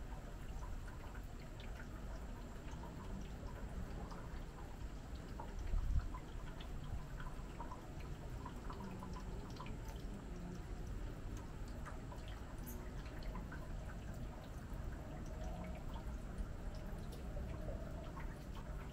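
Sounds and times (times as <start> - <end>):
irregular dripping: 0.0 - 18.9
small ticks: 0.5 - 14.6.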